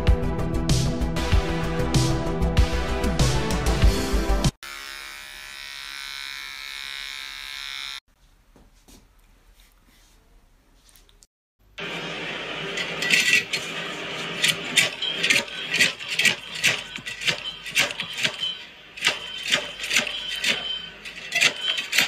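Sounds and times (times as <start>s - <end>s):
background noise: 8.1s - 11.8s
metal clanks and rattles of cutter: 12.7s - 22.0s.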